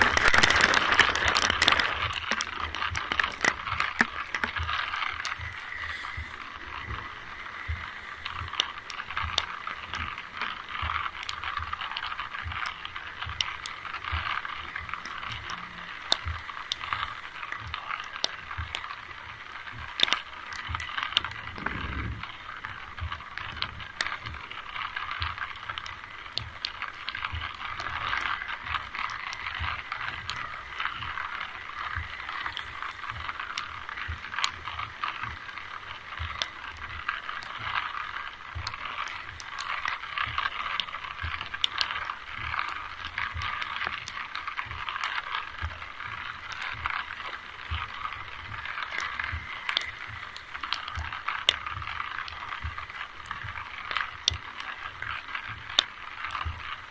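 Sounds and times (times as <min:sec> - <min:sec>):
rain hissing: 0:00.0 - 0:56.7
sharp ticks of drops: 0:00.0 - 0:56.9
soft low thumps: 0:21.3 - 0:23.3.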